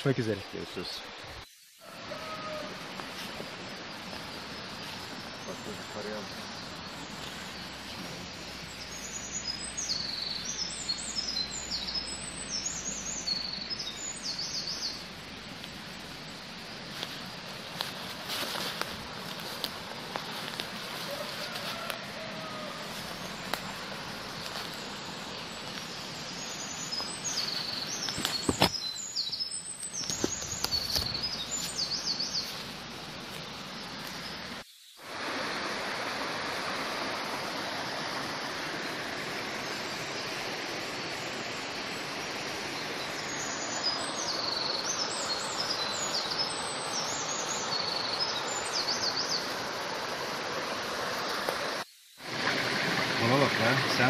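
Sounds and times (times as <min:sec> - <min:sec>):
small birds chirping: 0:00.0 - 0:35.7, 0:37.6 - 0:54.0
creek and waterfall rushing: 0:00.0 - 0:54.0.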